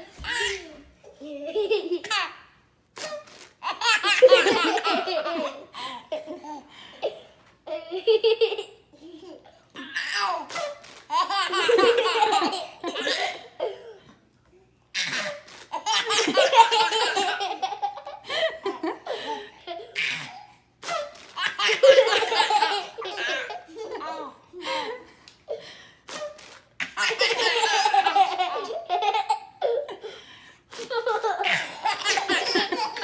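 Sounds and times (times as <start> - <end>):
baby laughing: 0.0 - 2.4, 3.0 - 13.8, 15.0 - 24.4, 26.8 - 30.0, 30.8 - 33.0
baby giggling: 30.8 - 33.0.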